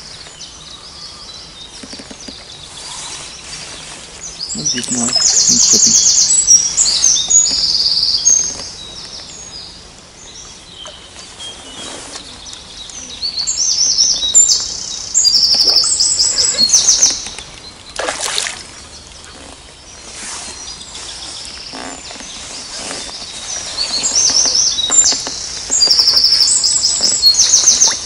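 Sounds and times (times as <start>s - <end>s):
songbird singing high trills: 4.2s - 18.0s, 19.3s - 28.0s
fish splashing at surface: 17.2s - 18.8s.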